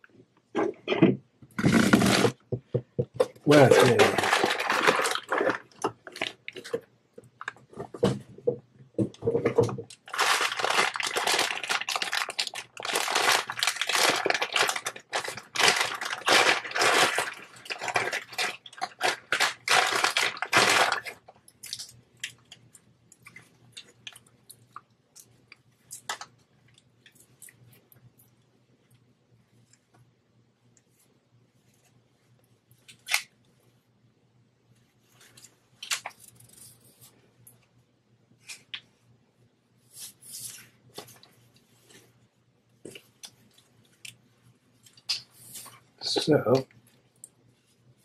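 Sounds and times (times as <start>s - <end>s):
plastic wrap crinkling: 3.3s - 7.8s, 9.6s - 22.4s.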